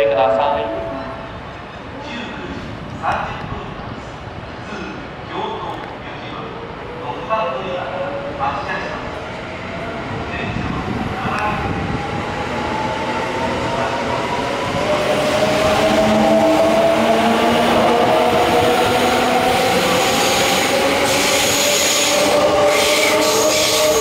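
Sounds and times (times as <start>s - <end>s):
train wheels rumbling on rails: 8.0s - 24.0s.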